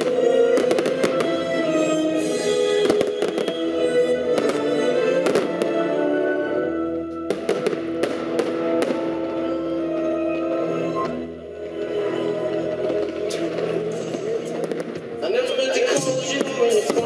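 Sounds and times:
fireworks bangs: 0.0 - 6.0, 7.3 - 9.6, 12.8 - 17.0
music with long held notes: 0.0 - 17.0.

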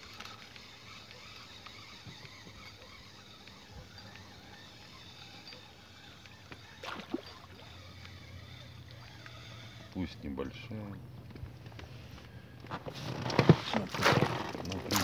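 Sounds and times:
lure cutting through water: 0.0 - 9.9
fish splashing at the surface: 6.7 - 7.8.

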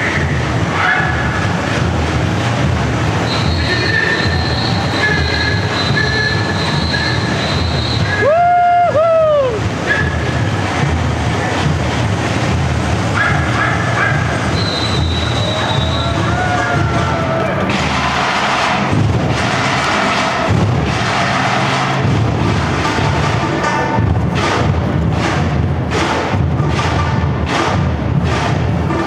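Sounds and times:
samba drum beat: 0.0 - 29.0
high whistle tones: 3.2 - 8.7, 14.5 - 16.8.

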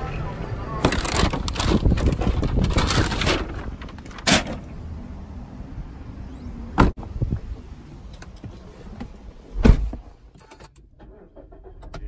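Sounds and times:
rustling and clattering: 0.8 - 4.6.

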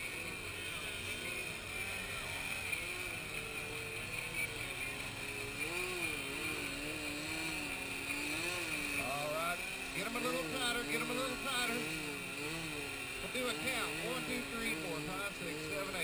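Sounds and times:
model airplane engines droning: 0.0 - 16.0.

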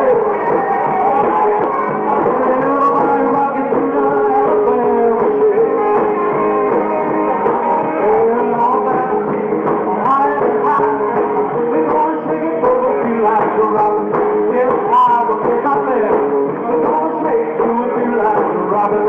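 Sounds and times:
guitar: 0.0 - 19.0
live rock band playing: 0.0 - 19.0
man singing: 0.0 - 19.0.

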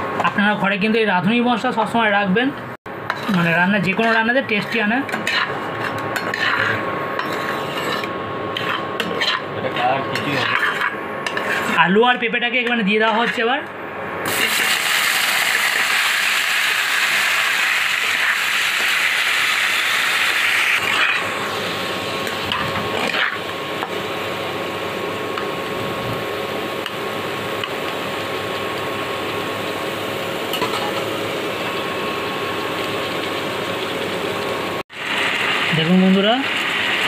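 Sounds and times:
metal spatula scraping pan: 3.1 - 11.8, 22.5 - 23.4
vegetables sizzling in hot oil: 14.2 - 37.0.

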